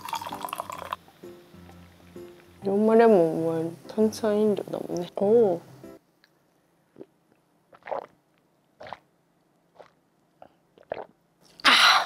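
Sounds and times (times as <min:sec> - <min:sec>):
person gulping drink: 0:06.9 - 0:08.2, 0:08.8 - 0:09.1, 0:09.8 - 0:12.0.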